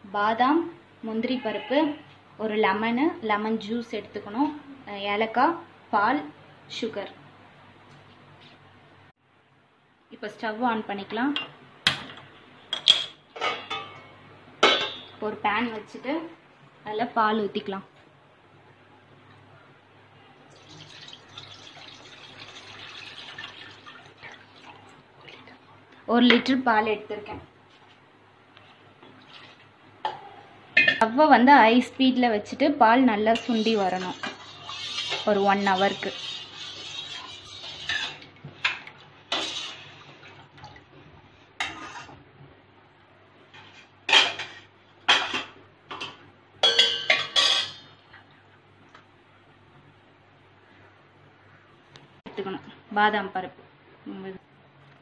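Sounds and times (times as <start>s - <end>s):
milk pouring into metal pan: 20.5s - 24.9s
steel ladle scraping a pan: 33.3s - 38.2s, 39.3s - 40.0s, 41.6s - 42.2s.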